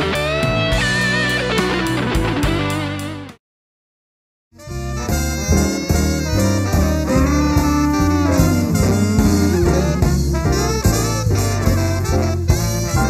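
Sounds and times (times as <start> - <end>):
drums and bass: 0.0 - 3.4, 4.6 - 13.0
swing band horn section: 4.6 - 13.0.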